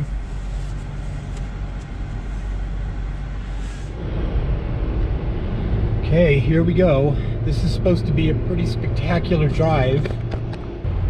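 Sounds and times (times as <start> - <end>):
car engine and road hum: 0.0 - 11.0.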